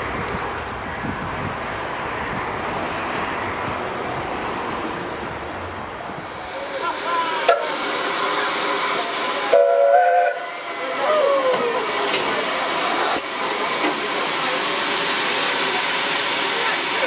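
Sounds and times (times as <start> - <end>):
steam locomotive hissing steam: 6.2 - 17.0
train whistle blast: 6.6 - 11.8.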